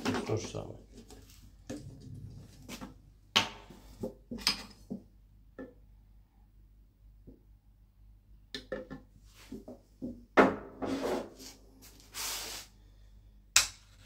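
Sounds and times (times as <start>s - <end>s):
rustling noise: 0.9s - 3.0s, 10.9s - 12.8s.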